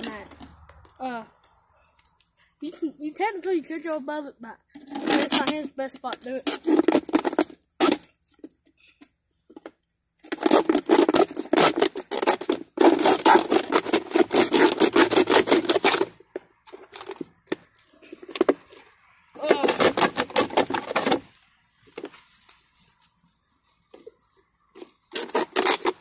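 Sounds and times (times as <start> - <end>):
knife sawing through plastic bottle: 4.7 - 5.6, 6.3 - 8.1, 10.2 - 16.2, 19.4 - 21.3, 24.8 - 26.0.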